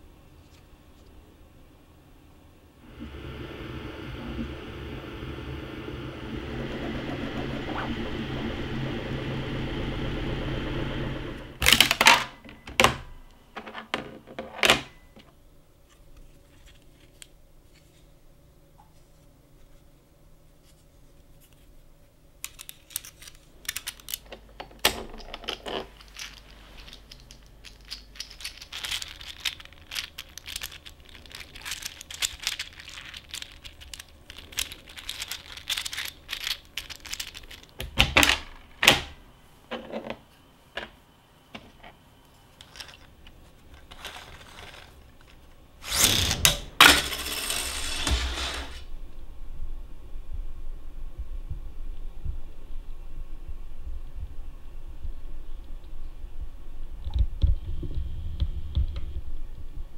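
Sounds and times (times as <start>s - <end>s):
small hard objects clicking: 26.0s - 37.9s.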